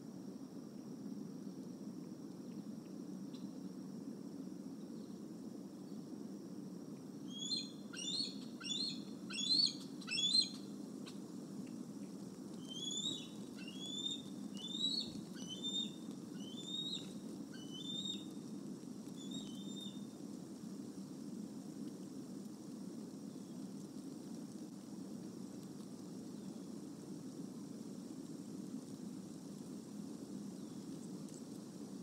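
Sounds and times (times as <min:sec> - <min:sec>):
eagle chirping calls: 0:07.3 - 0:10.6, 0:12.6 - 0:17.0, 0:17.6 - 0:18.2.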